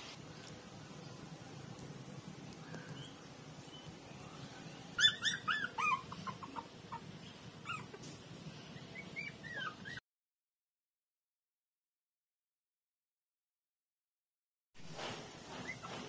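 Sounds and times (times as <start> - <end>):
puppies whining: 4.4 - 10.0, 15.4 - 16.0
puppies yelping: 4.9 - 10.0, 15.6 - 16.0.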